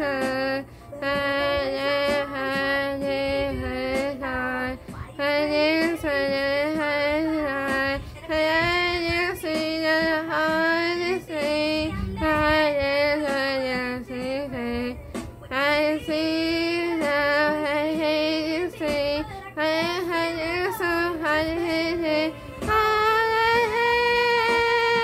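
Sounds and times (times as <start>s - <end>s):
woman singing solo: 0.0s - 25.0s.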